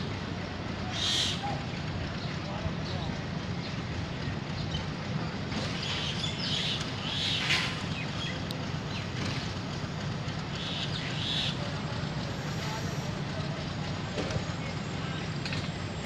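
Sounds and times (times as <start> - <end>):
locomotive engine rumbling: 0.0 - 16.0
birds chirping: 0.8 - 4.9, 5.6 - 9.3, 10.5 - 11.8.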